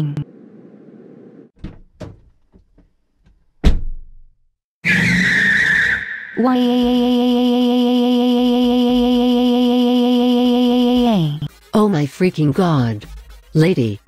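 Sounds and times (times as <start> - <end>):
loud thump: 3.6 - 4.3
tyres screeching: 4.8 - 7.1.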